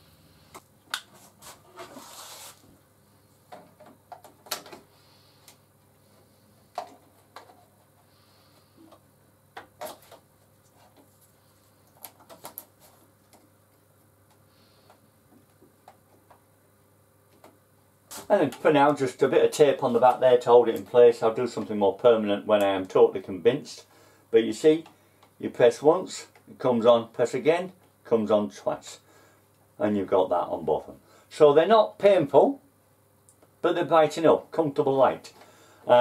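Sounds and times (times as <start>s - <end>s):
short rasp: 1.4s - 2.6s.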